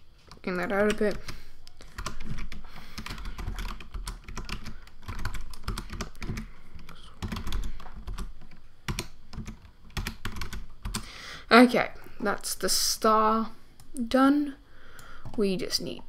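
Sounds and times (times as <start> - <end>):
computer keyboard clicks: 0.3 - 11.1.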